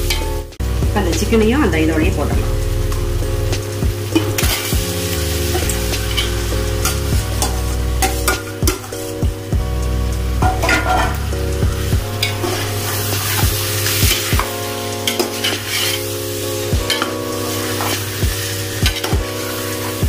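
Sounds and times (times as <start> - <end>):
food sizzling in hot oil: 0.0 - 20.0
metal spoon scraping a pot: 5.4 - 9.2, 10.4 - 11.4, 15.0 - 16.1.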